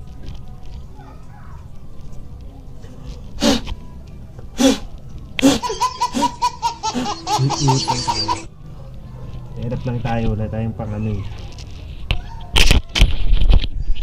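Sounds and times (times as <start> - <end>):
person laughing: 5.4 - 8.5.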